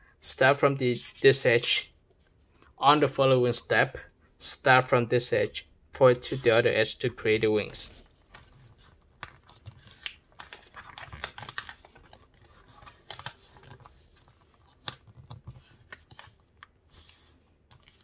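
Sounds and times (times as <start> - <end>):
crisp ticks of paper creasing: 7.6 - 18.0
paper rustling and crinkling: 7.6 - 18.0.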